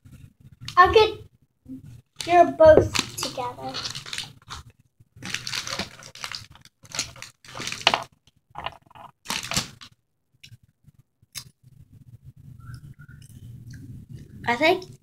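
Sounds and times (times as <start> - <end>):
popcorn crunching: 2.2 - 10.6.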